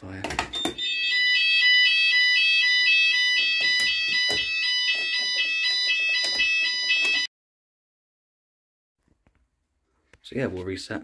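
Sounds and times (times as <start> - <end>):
fire alarm sounders: 0.5 - 7.3.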